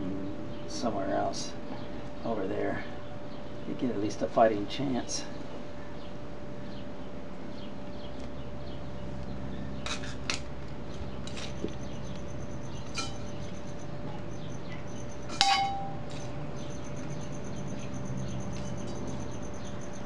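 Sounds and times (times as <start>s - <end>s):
steady hum: 0.0s - 20.0s
garden pots and tools clinking: 11.2s - 17.1s.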